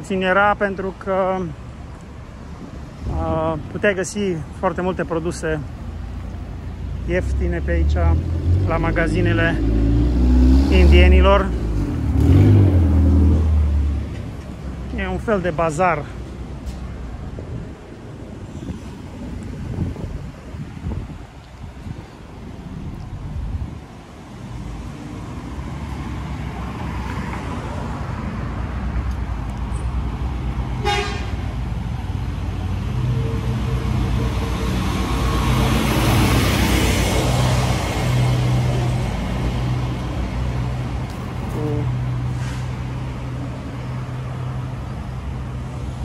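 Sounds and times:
vehicles passing: 0.0s - 46.0s
car horn toot: 30.8s - 31.4s.

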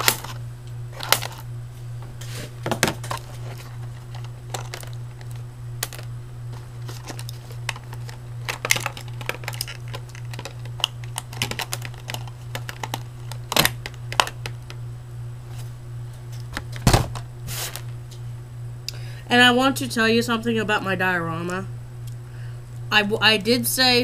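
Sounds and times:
low hum: 0.0s - 24.0s
plastic pieces clicking on floor: 6.8s - 14.5s.

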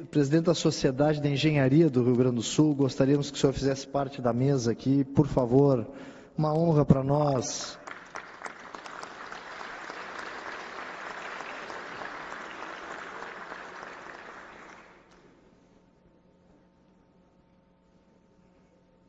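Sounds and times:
audience applauding: 7.8s - 15.2s.

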